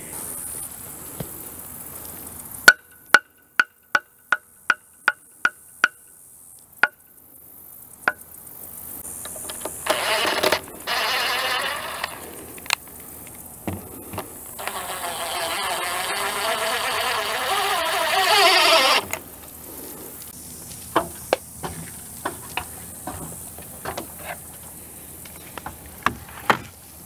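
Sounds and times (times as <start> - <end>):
power drill driving screw: 9.8 - 12.3, 14.6 - 19.2.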